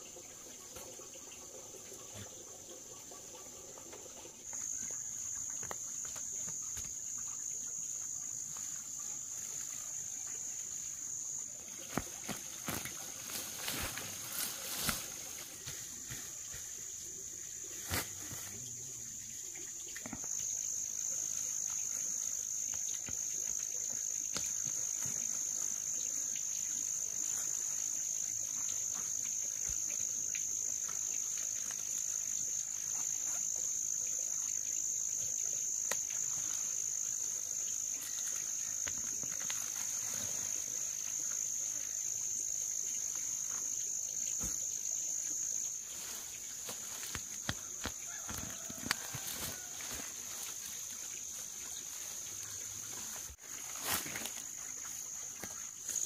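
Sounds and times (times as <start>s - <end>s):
insect chorus drone: 0.0s - 56.0s
plants rustling and clicking: 11.7s - 16.8s, 38.0s - 40.8s, 46.0s - 50.8s, 51.9s - 56.0s.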